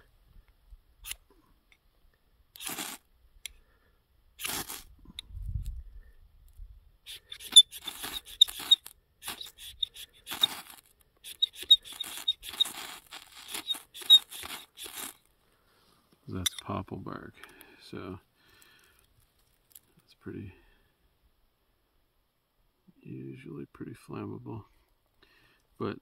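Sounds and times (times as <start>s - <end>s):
ferro rod scraped with striker: 2.6s - 3.0s, 4.4s - 4.9s, 7.1s - 15.2s.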